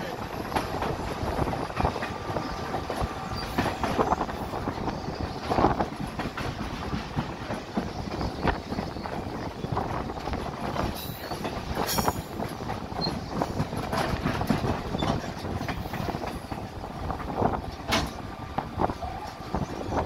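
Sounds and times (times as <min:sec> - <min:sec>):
train wheels rumbling on rails: 0:00.0 - 0:20.0
sharp rail clacks: 0:10.1 - 0:19.6.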